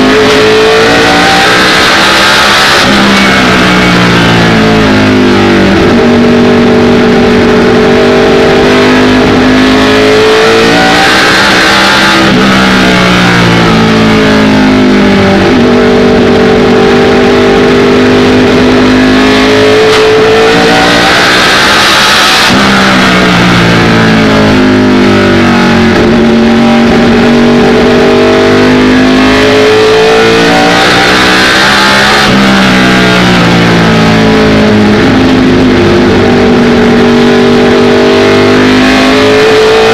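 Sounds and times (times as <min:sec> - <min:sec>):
race car engine revving: 0:00.0 - 0:39.9.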